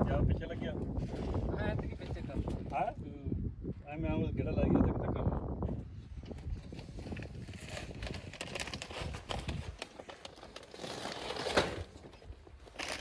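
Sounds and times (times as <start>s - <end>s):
crinkling and rustling handling noise: 6.2s - 13.0s.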